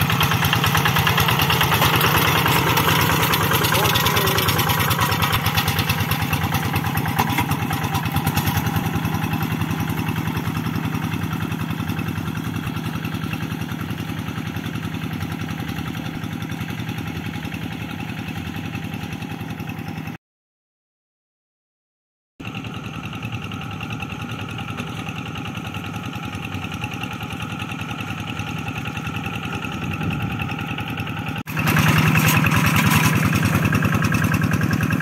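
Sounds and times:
diesel engine chugging: 0:00.0 - 0:20.2, 0:22.4 - 0:35.0.

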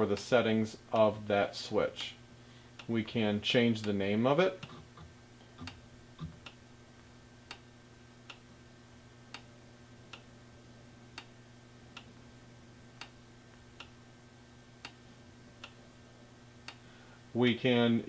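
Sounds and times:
low steady hum: 0:00.0 - 0:18.0
faint regular clicking: 0:02.8 - 0:03.0, 0:07.4 - 0:08.5, 0:10.1 - 0:10.3, 0:11.1 - 0:12.3, 0:12.9 - 0:14.0, 0:14.8 - 0:15.0, 0:15.6 - 0:15.8, 0:16.6 - 0:16.8.

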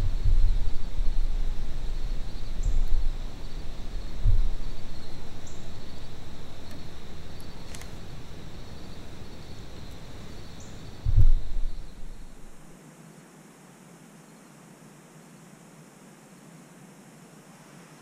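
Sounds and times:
wind buffeting microphone: 0:00.0 - 0:12.8
insects trilling: 0:00.0 - 0:17.7.

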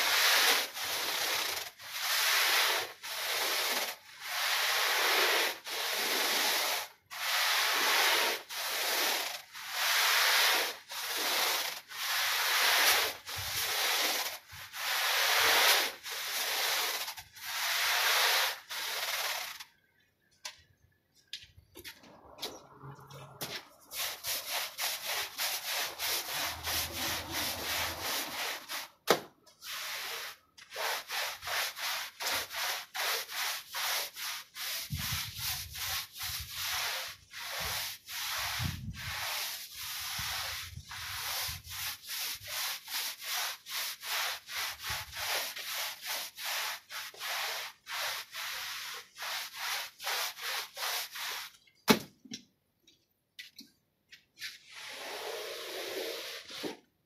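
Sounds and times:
brush scrubbing wet rug: 0:00.0 - 0:19.6, 0:22.0 - 0:51.8, 0:54.4 - 0:56.8
sharp knock: 0:51.9 - 0:52.1.

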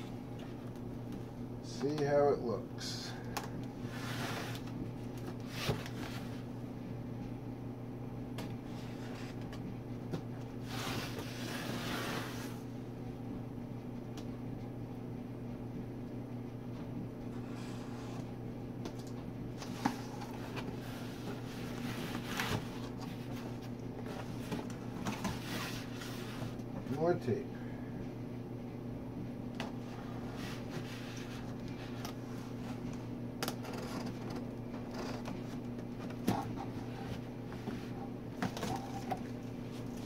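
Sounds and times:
steady low hum: 0:00.0 - 0:40.0
cardboard and tape rustling: 0:19.0 - 0:26.6, 0:30.2 - 0:40.0.

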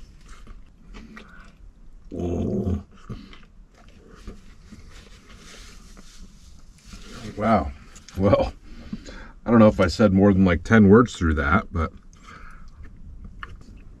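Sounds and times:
man chewing food: 0:00.0 - 0:07.2, 0:11.9 - 0:14.0
low throaty grunt: 0:02.1 - 0:03.2.

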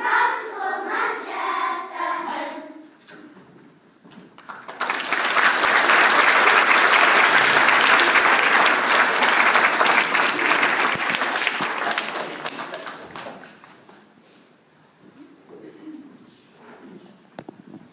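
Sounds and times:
audience applause: 0:04.4 - 0:14.0.

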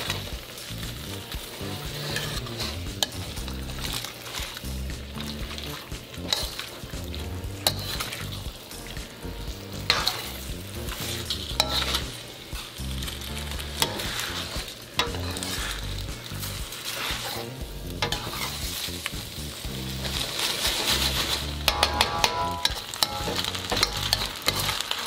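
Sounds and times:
food sizzling in a wok: 0:00.0 - 0:25.0
ladle stirring food: 0:00.0 - 0:25.0
ladle clinking against wok: 0:21.7 - 0:24.8.

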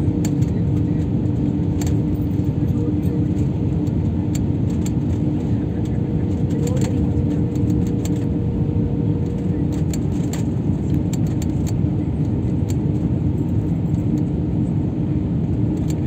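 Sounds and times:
constant hum: 0:00.0 - 0:16.0
jet engines and rushing air in cabin: 0:00.0 - 0:16.0
light clicks and rattles: 0:00.2 - 0:08.4, 0:09.2 - 0:11.9.

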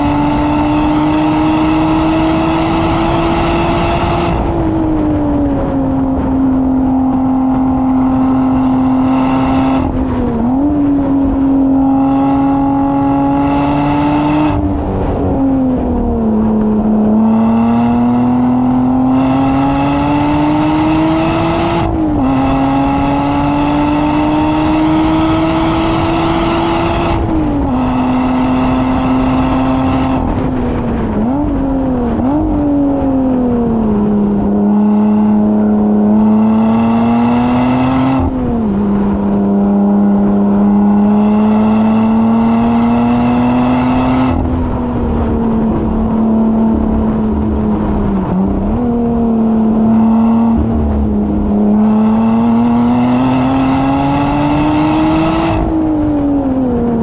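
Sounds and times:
race car engine working hard: 0:00.0 - 0:57.0
rush of wind noise: 0:00.0 - 0:57.0.

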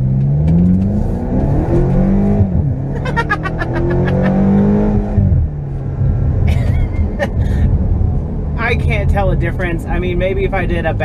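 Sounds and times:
car engine at full throttle: 0:00.0 - 0:11.0
man laughing: 0:02.9 - 0:04.8, 0:06.5 - 0:07.6.

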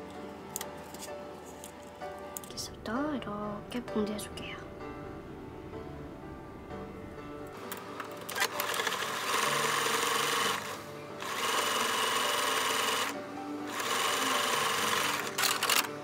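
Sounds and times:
sewing machine stitching: 0:08.2 - 0:16.0.

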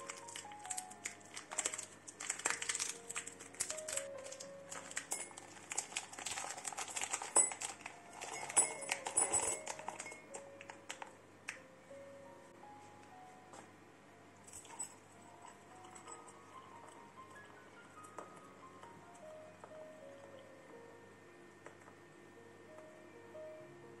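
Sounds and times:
plastic sachet crinkling: 0:00.0 - 0:11.1
soft background music: 0:00.0 - 0:24.0.

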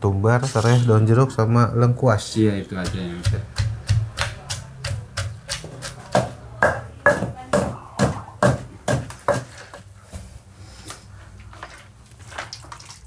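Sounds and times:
pestle pounding in stone mortar: 0:02.7 - 0:09.9.

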